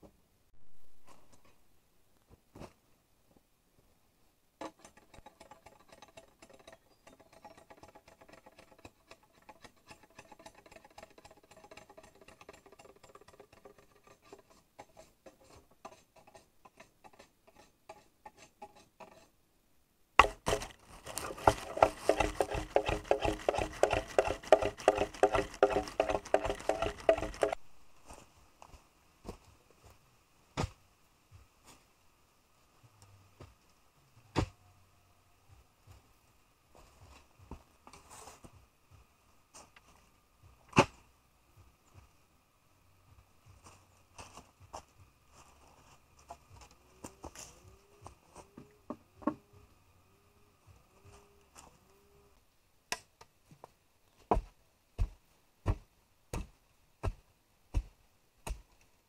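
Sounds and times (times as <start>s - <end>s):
hand tool striking bamboo: 20.2s - 27.6s.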